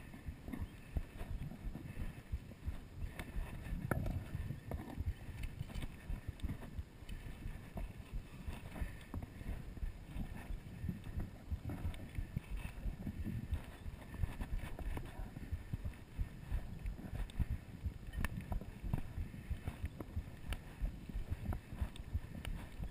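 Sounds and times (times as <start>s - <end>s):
footsteps on rocky dirt trail: 0.0s - 22.9s.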